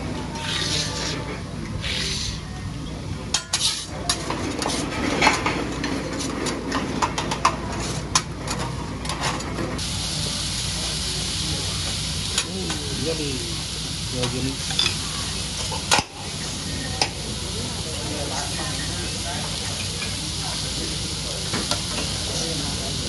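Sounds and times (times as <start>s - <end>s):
food sizzling on griddle: 0.3s - 2.5s, 3.3s - 5.2s, 9.8s - 23.0s
metal utensils clinking on dishes: 3.3s - 9.8s, 14.2s - 15.0s, 19.6s - 20.3s.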